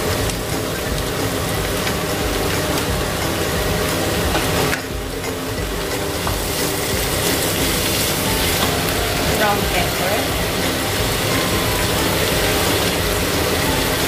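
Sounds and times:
extractor fan humming: 0.0 - 14.0
meat and onions sizzling in pan: 0.0 - 14.0.

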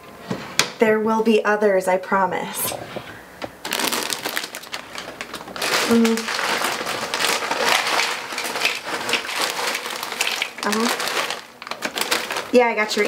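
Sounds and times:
plastic snack bag crinkling: 3.6 - 13.0
chips rattling into glass bowl: 3.7 - 13.0.

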